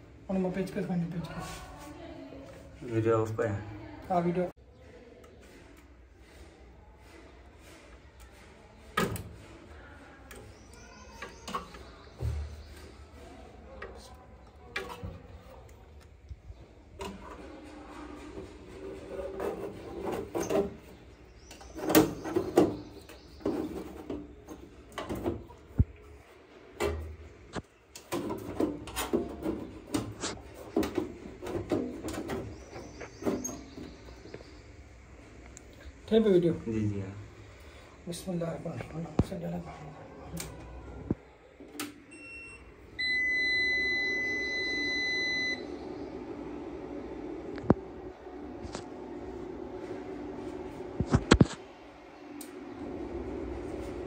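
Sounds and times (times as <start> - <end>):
steady hum: 42.1 - 54.0.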